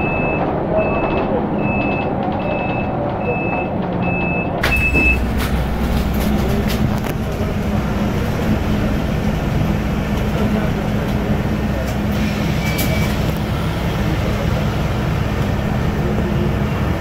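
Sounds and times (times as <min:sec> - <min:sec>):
bus door warning beeps: 0:00.0 - 0:05.9, 0:12.1 - 0:13.4
bus doors shutting click: 0:00.0 - 0:07.5
bus low hum: 0:00.0 - 0:17.0.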